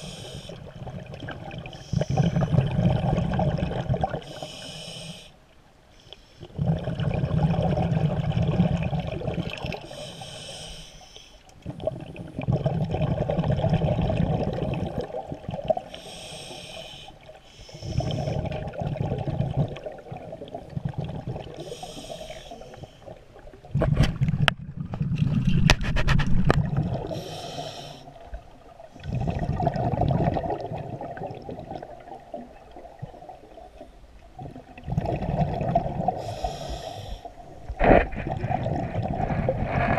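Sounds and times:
regulator hiss on inhale: 0.0 - 0.7, 1.7 - 2.5, 4.2 - 6.5, 9.8 - 11.5, 15.9 - 18.4, 21.6 - 23.2, 27.0 - 28.3, 36.1 - 37.6.

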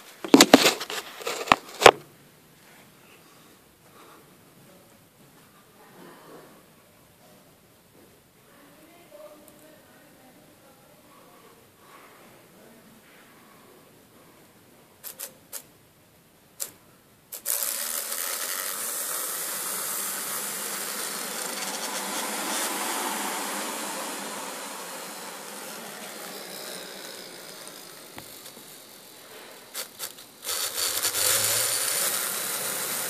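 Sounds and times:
fidget spinner whirring: 15.0 - 15.7, 16.6 - 33.0.

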